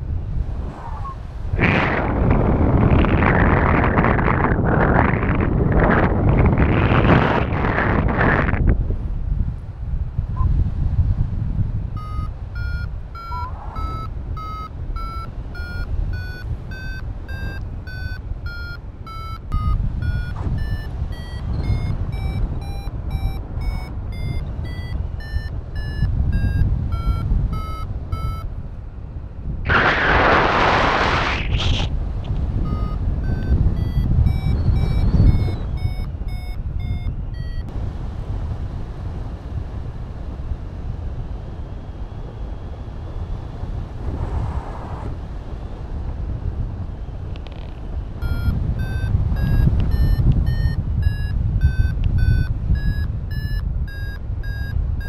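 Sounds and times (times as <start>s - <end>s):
wind on microphone: 0.0s - 55.0s
variometer short beeps: 11.9s - 28.6s, 32.6s - 37.7s, 48.2s - 55.0s.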